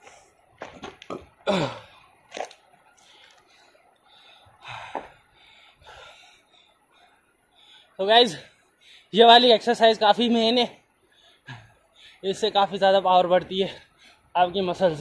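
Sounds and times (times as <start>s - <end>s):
man's breathy effort sounds: 1.5s - 2.0s.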